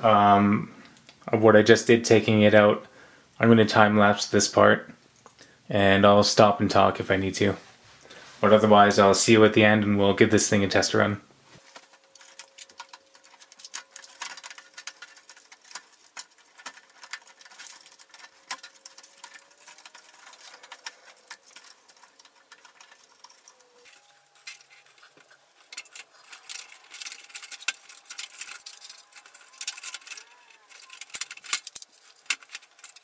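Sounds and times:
rapid small clicks and taps: 11.7s - 33.0s.

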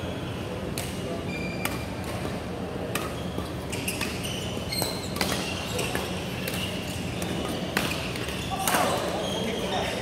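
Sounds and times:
racket hitting shuttlecock: 2.9s - 3.2s
shoes squeaking on floor: 3.2s - 10.0s.

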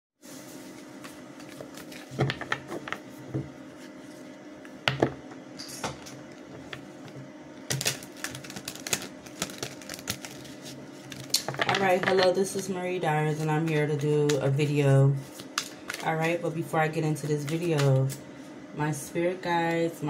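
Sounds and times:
steady low hum: 0.2s - 20.0s.

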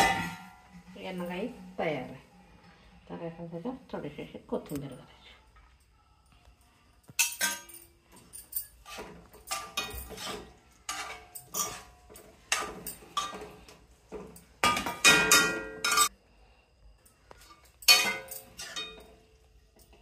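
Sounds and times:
metal ladle scraping a pan: 8.8s - 13.8s, 17.9s - 19.1s.

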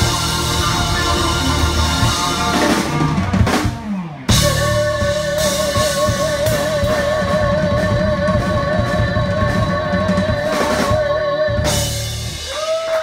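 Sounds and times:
electric guitar sustained note: 0.0s - 7.5s
electric bass: 0.0s - 12.8s
drum fills and cymbals: 0.0s - 13.0s.

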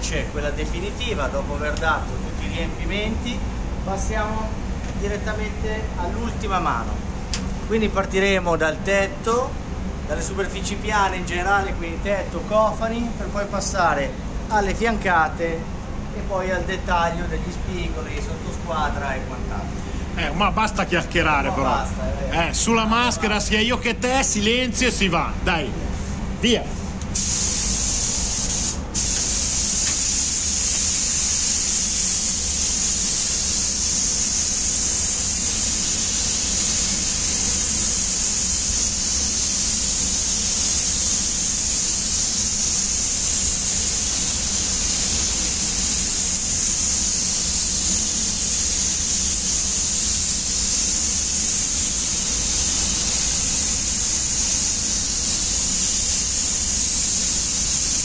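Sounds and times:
spray gun hissing: 25.9s - 58.0s.

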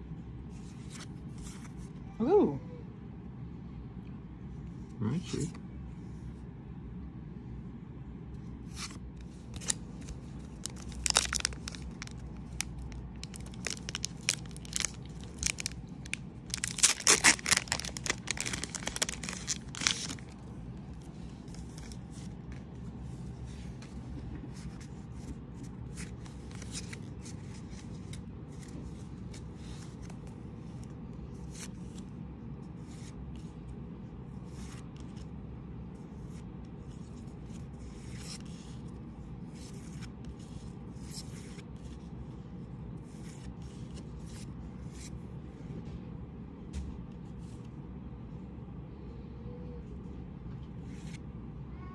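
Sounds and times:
foil wrapper crackling and tearing: 10.5s - 20.5s.

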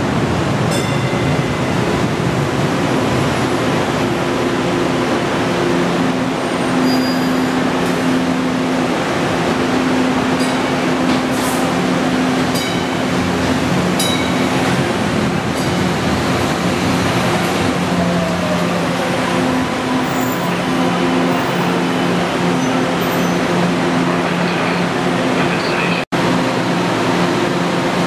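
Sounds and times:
train pulling in: 0.0s - 28.0s
train rumble: 0.0s - 28.0s
high-pitched wheel squeaks: 6.8s - 7.5s.

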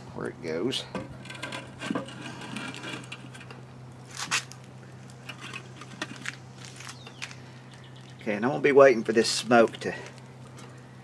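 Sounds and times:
steady low hum: 0.0s - 11.0s
wire grate clattering: 1.0s - 3.6s.

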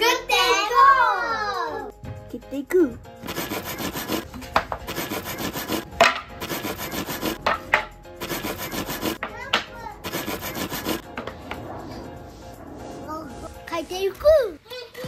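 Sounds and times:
hand saw cutting wood: 3.2s - 7.4s, 8.2s - 9.2s, 10.0s - 11.0s.

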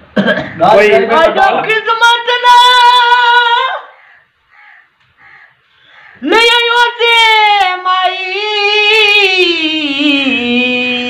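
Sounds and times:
elderly man singing unaccompanied: 1.1s - 3.9s, 6.2s - 11.0s.

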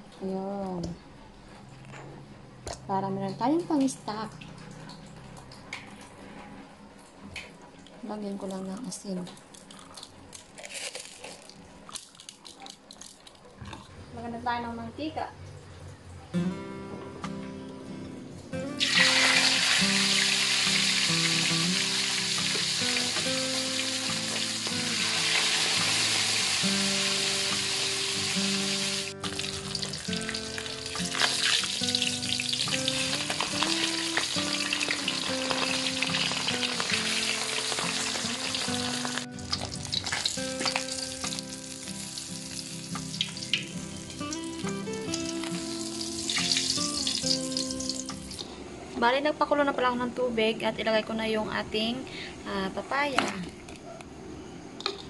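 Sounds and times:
guitar music: 16.3s - 48.6s
fish sizzling in hot oil: 18.8s - 48.5s.

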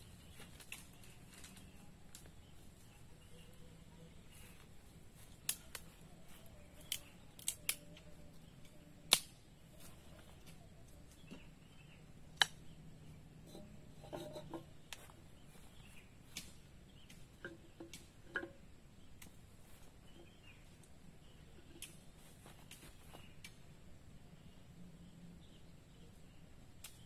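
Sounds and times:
sharp clicks and snaps: 5.3s - 6.1s, 6.7s - 9.5s, 12.2s - 12.8s, 16.3s - 19.4s, 21.6s - 23.6s, 26.8s - 27.0s.

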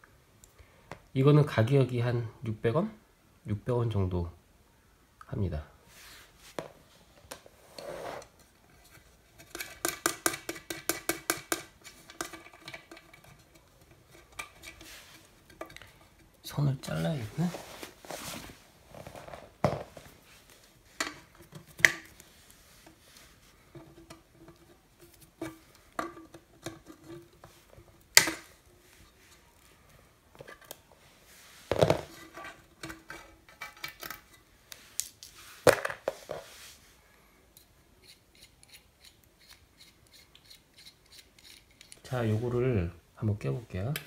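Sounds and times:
handling of wires and tools: 6.5s - 36.6s.

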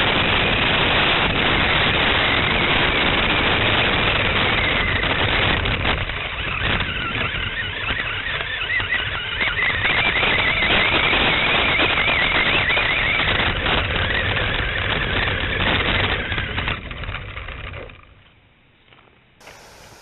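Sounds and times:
electric motor and gears whining: 0.0s - 18.3s, 19.4s - 20.0s
tyres rattling over grass: 16.2s - 20.0s.

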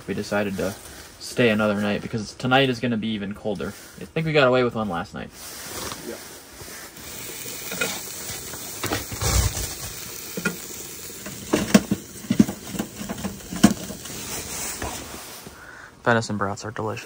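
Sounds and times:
sausages sizzling in a pan: 6.6s - 15.4s
firewood knocking and clunking: 7.4s - 15.1s.

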